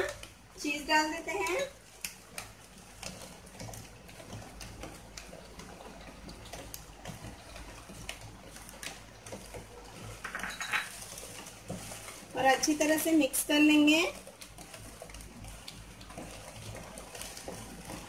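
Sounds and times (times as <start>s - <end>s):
sauce bubbling in a pan: 0.0s - 18.0s.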